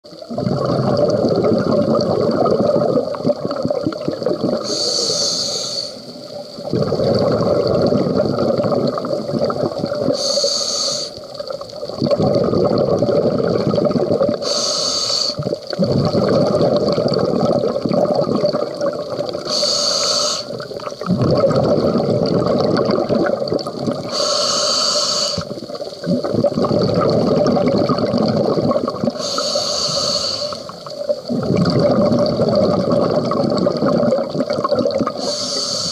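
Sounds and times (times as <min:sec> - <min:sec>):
exhaled bubbles rushing: 0:00.1 - 0:04.8, 0:06.2 - 0:10.3, 0:11.2 - 0:14.5, 0:15.3 - 0:19.6, 0:20.4 - 0:24.2, 0:25.4 - 0:29.3, 0:30.5 - 0:35.3
regulator inhale hiss: 0:04.6 - 0:06.4, 0:10.1 - 0:11.3, 0:14.4 - 0:15.5, 0:19.5 - 0:20.7, 0:24.1 - 0:25.7, 0:29.2 - 0:31.0, 0:35.2 - 0:35.9.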